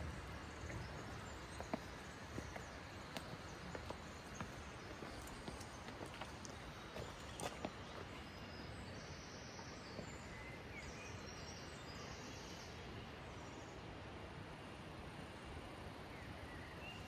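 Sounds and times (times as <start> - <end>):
small birds trilling: 0.0 - 12.8
steady background hiss: 0.0 - 17.0.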